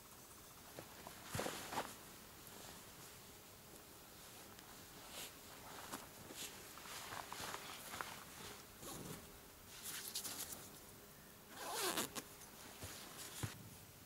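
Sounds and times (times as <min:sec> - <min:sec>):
tent zipper being pulled: 0:11.5 - 0:12.2.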